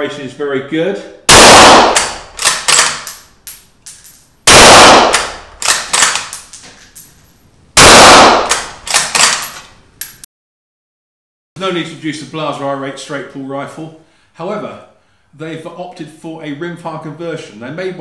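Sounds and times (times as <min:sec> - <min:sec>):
suppressed rifle shots with echo: 0:01.3 - 0:02.8, 0:04.5 - 0:06.0, 0:07.8 - 0:08.7
rifle bolt clicking: 0:02.0 - 0:03.2.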